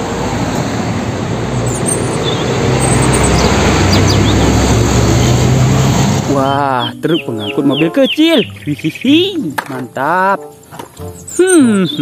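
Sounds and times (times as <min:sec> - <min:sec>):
road noise: 0:00.0 - 0:12.0
truck diesel engine hum: 0:00.0 - 0:12.0.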